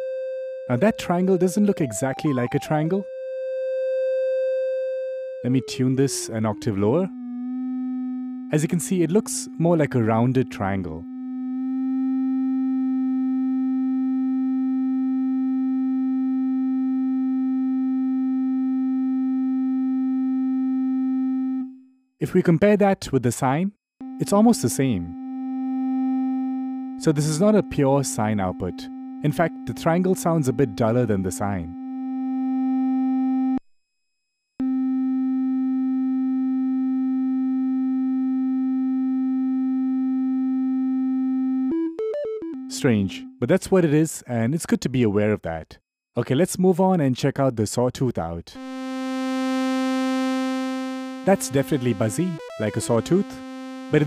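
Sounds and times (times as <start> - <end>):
steady synth tone: 48.6 - 54.0.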